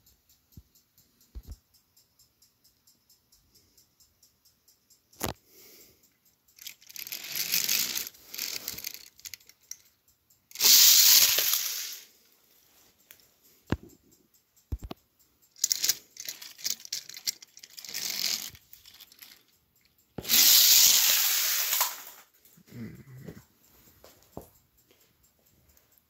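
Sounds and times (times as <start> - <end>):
toy train clattering on track: 4.8 - 22.8
toy train rushing roll: 6.6 - 9.9, 10.5 - 12.3, 15.5 - 19.6, 20.2 - 22.4.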